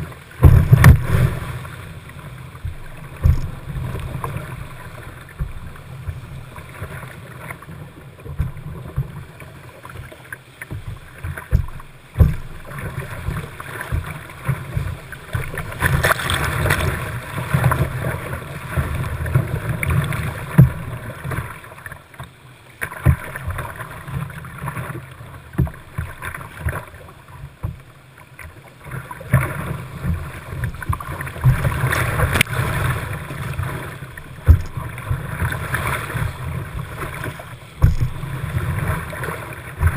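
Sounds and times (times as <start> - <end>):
whitewater rushing and splashing: 0.0 - 39.9
water thumps: 0.4 - 1.8, 2.6 - 6.9, 10.6 - 18.0, 20.5 - 21.0, 23.0 - 23.6, 25.5 - 26.8, 29.4 - 39.9.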